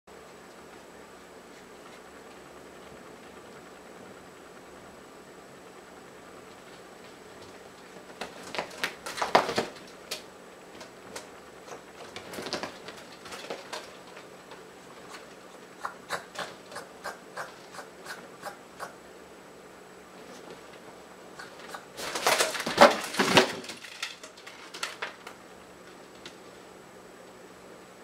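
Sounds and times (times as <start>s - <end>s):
kitten scrambling scrapes and rustles: 11.7s - 14.3s, 21.4s - 25.0s.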